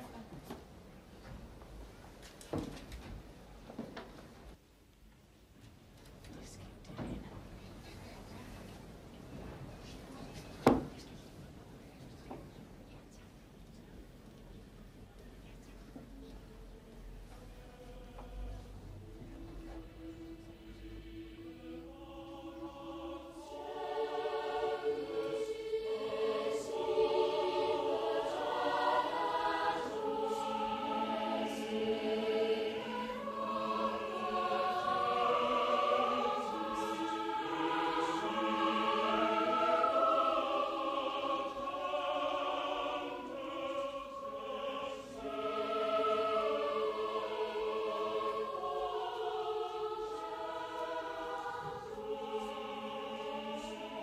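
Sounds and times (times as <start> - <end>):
choir singing: 16.0 - 54.0.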